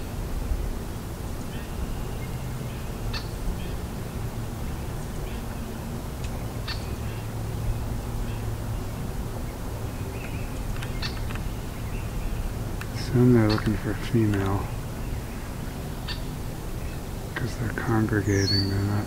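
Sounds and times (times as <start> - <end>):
low steady hum: 0.0 - 19.0
short bird calls and chirps: 4.7 - 7.3, 9.9 - 19.0.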